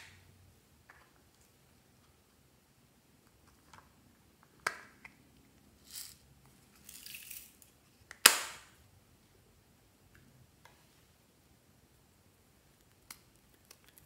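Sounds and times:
plastic parts rustling: 5.8 - 7.7
loud sharp plastic snap: 8.1 - 8.7.

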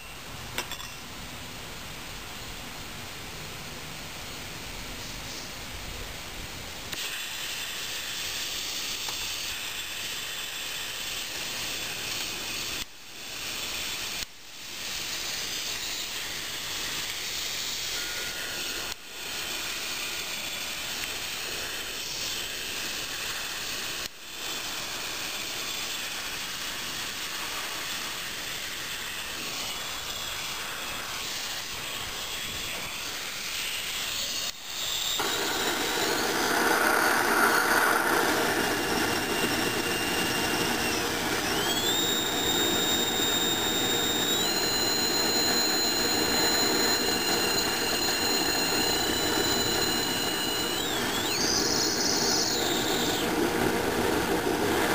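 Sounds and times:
oil burner nozzle hissing: 6.9 - 54.9
burner flame igniting: 35.2 - 54.9.

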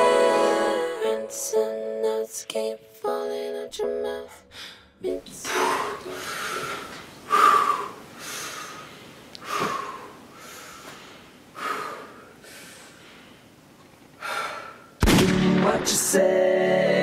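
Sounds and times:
man gasping and breathing heavily: 4.5 - 13.2, 14.2 - 15.0.

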